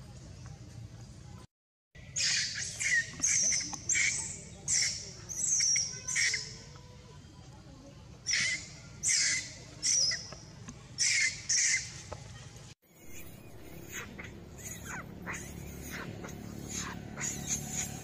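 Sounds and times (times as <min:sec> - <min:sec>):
baby monkey shrieking: 0:02.1 - 0:06.6, 0:08.2 - 0:10.4, 0:11.0 - 0:12.0, 0:13.0 - 0:18.0.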